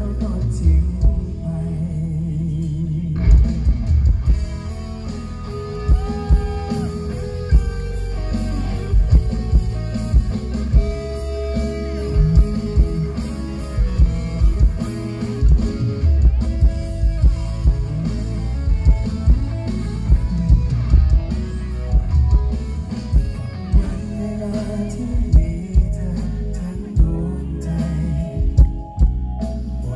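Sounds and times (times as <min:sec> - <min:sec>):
drum kit: 0:00.0 - 0:01.6, 0:02.6 - 0:29.9
bass guitar: 0:00.0 - 0:29.9
electric guitar bent notes: 0:03.2 - 0:27.1.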